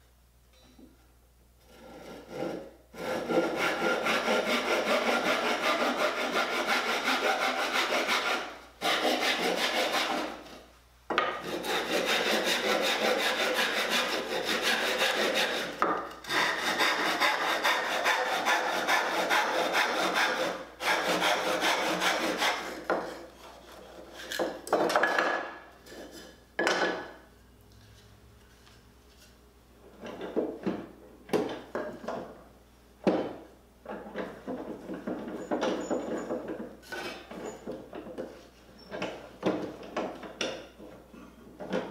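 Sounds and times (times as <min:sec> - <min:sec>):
hand saw cutting wood: 0:01.6 - 0:24.6, 0:36.8 - 0:37.5.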